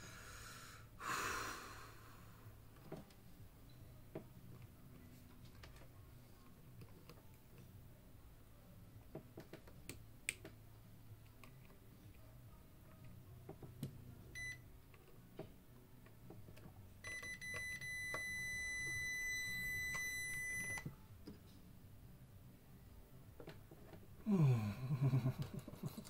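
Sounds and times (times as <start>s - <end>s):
faint clicks and taps: 9.0s - 10.6s
long steady beep: 14.4s - 14.6s, 17.0s - 20.9s.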